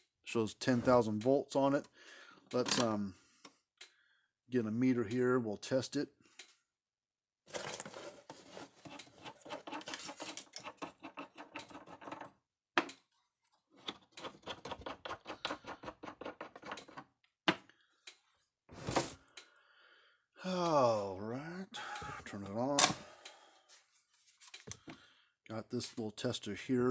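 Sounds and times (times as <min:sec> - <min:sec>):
plastic knobs rattling on threads: 0:08.8 - 0:12.9, 0:13.8 - 0:17.2.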